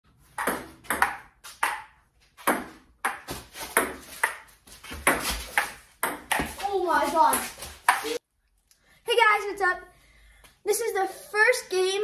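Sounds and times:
ping pong ball hitting paddles: 0.3s - 6.6s.

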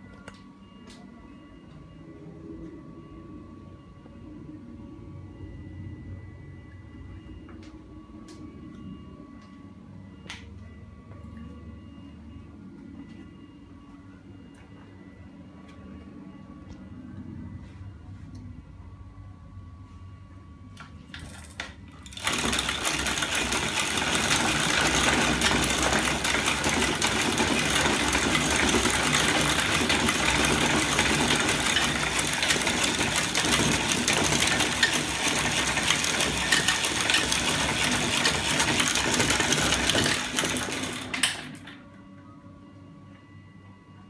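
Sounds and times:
fast mechanical clatter: 21.3s - 41.7s.

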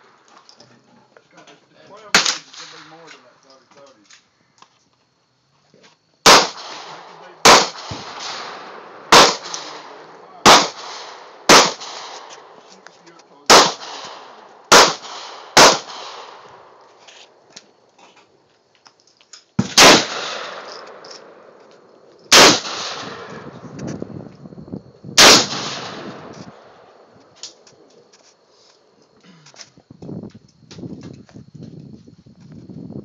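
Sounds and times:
loud gunshots echoing: 2.1s - 3.0s, 6.2s - 12.6s, 13.5s - 16.6s, 19.6s - 21.5s, 22.3s - 23.6s, 25.2s - 27.0s.

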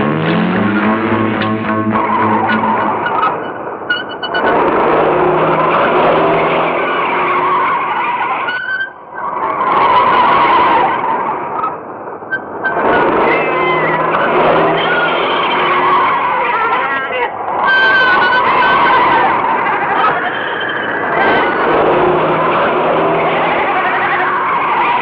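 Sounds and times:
car engine running hard: 0.0s - 8.3s, 12.2s - 16.4s, 17.8s - 25.0s
tyres skidding and screeching: 0.0s - 25.0s.

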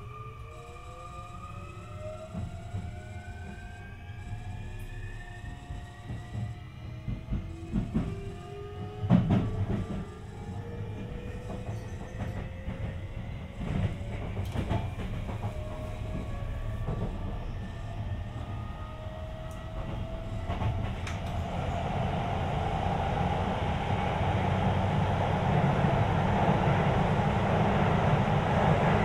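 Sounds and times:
train motor inverter whine: 0.0s - 29.0s
rail-joint clicks: 2.1s - 18.6s, 19.4s - 21.4s
wheel-on-rail running noise: 5.4s - 27.3s.

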